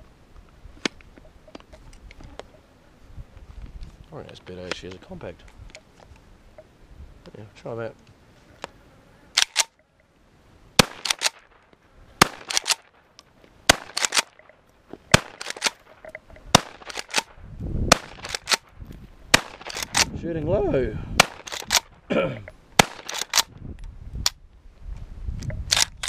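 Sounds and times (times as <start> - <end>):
rifle shots: 10.8 - 11.6, 12.2 - 13.0, 13.7 - 14.4, 15.1 - 15.9, 16.5 - 17.3, 17.9 - 18.6, 19.3 - 20.1, 21.2 - 22.0, 22.8 - 23.5.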